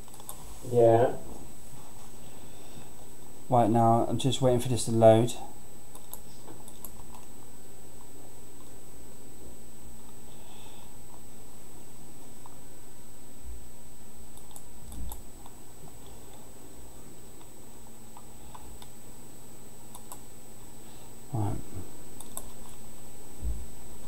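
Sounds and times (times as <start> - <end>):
computer keyboard and mouse clicks: 0.0 - 0.4, 5.9 - 7.3, 14.3 - 15.2, 19.9 - 20.2, 22.2 - 22.8
faint steady high whine: 0.0 - 24.0.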